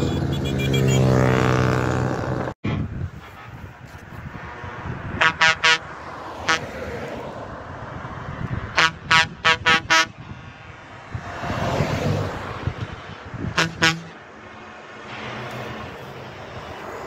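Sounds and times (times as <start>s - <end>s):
truck air horn toots: 0.0s - 1.6s, 2.6s - 3.7s, 5.2s - 6.8s, 8.7s - 10.3s, 13.5s - 14.2s
road noise: 0.0s - 17.0s
car driving past: 11.0s - 12.8s.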